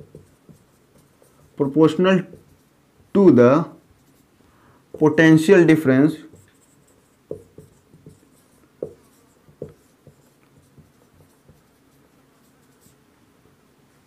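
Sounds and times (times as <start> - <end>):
marker pen writing on whiteboard: 0.0 - 4.3, 4.9 - 13.0.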